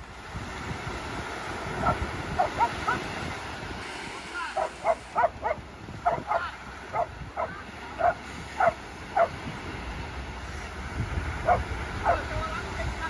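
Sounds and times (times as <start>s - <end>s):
dog barking: 1.8s - 3.1s, 4.5s - 9.4s, 11.4s - 12.3s.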